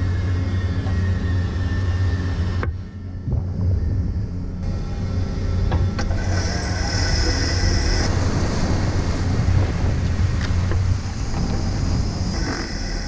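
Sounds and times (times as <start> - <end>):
ship machinery rumbling: 0.0 - 13.0
wind buffeting microphone: 2.5 - 13.0
sea water rushing and splashing: 6.2 - 13.0.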